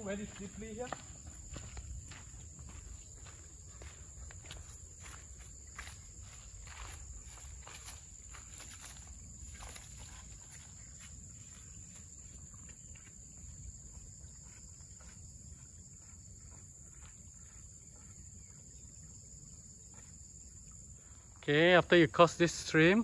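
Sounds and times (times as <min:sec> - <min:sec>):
footsteps on dirt trail: 0:00.0 - 0:20.6
insects droning: 0:00.0 - 0:23.0.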